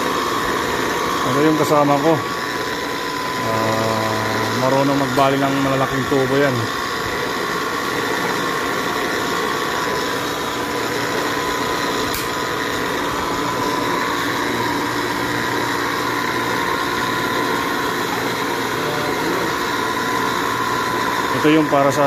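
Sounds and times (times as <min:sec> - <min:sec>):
pipe-threading machine whining: 0:00.0 - 0:22.0
sharp click: 0:12.1 - 0:12.3.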